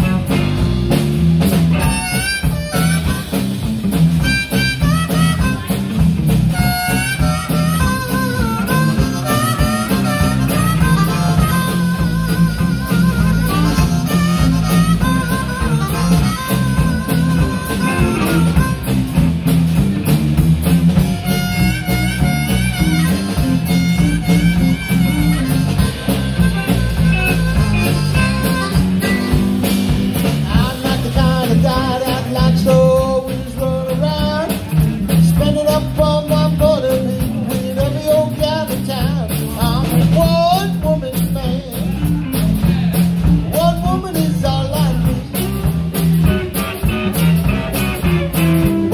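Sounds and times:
drum kit: 0.0 - 48.9
electric guitars: 0.0 - 48.9
harmonica solo: 1.7 - 19.5, 20.9 - 30.6.

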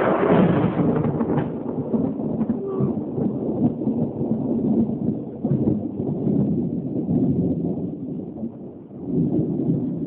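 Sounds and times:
thunder rumbling and crackling: 0.0 - 10.0.

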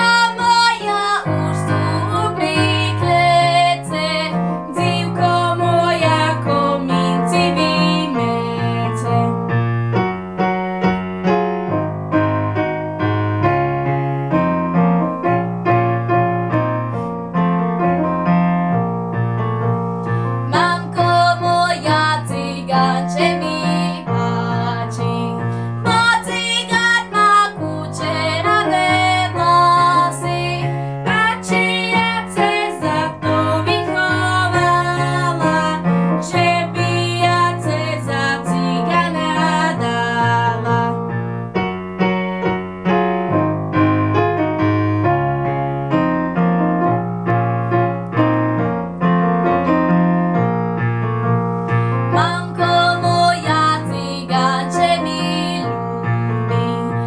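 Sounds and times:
girls singing folk song: 0.0 - 9.3, 20.5 - 40.8, 52.1 - 55.8
electronic keyboard with bass line: 9.4 - 21.2, 41.0 - 53.2.

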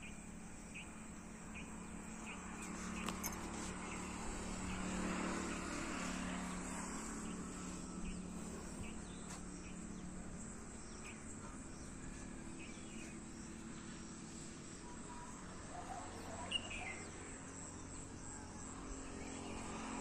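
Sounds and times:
distant engine hum: 0.0 - 20.0.

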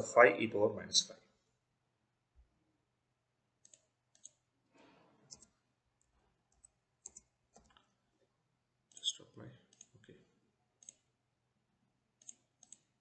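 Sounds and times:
computer keyboard and mouse clicks: 3.6 - 4.4, 5.3 - 5.6, 6.5 - 7.9, 8.9 - 10.1, 10.8 - 11.1, 12.2 - 13.0.

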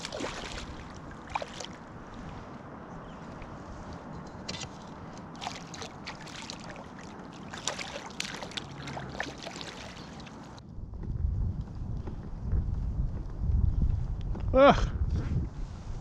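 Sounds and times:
small sharp ticks and splashes: 0.0 - 2.5, 3.3 - 10.6
water sloshing around hull: 0.0 - 10.6.

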